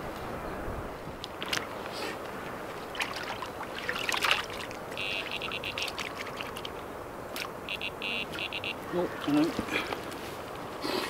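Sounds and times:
water splashing: 0:01.2 - 0:09.9
bite alarm beeps: 0:05.0 - 0:05.9, 0:07.7 - 0:08.8.

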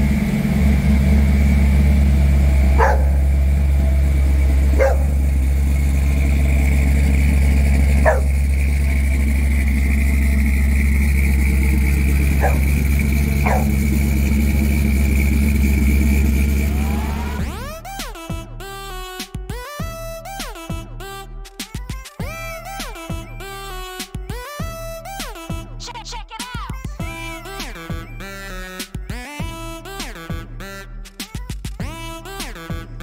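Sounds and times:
truck engine running at low revs: 0:00.0 - 0:18.8, 0:27.0 - 0:31.1
dog barking: 0:02.8 - 0:03.3, 0:04.7 - 0:05.2, 0:08.0 - 0:08.4, 0:12.4 - 0:12.8, 0:13.4 - 0:13.9.

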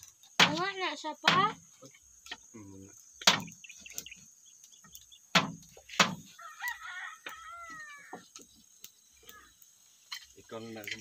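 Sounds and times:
chickens clucking: 0:02.4 - 0:11.0.

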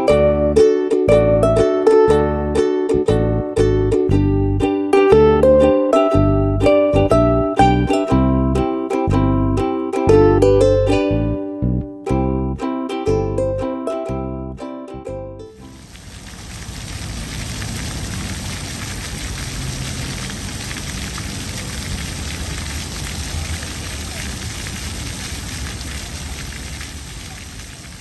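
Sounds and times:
fountain jets splashing on paving: 0:15.6 - 0:28.0.

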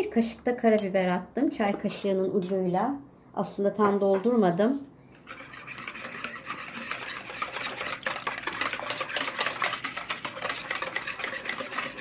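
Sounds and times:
whisk beating in plastic bowl: 0:05.2 - 0:12.0.

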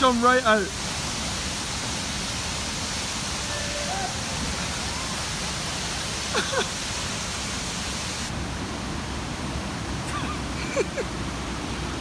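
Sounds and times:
waterfall rushing: 0:00.0 - 0:12.0
person exclaiming: 0:03.5 - 0:04.2.

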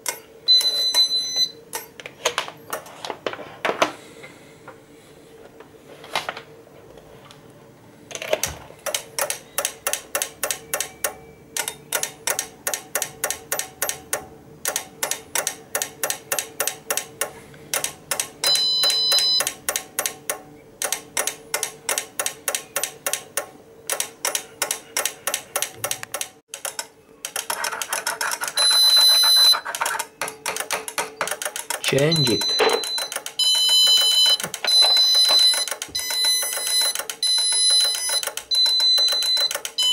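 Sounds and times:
long high beep: 0:18.4 - 0:19.4, 0:32.0 - 0:39.9
alarm system ticking: 0:18.4 - 0:19.5, 0:28.6 - 0:29.6, 0:31.8 - 0:39.9.

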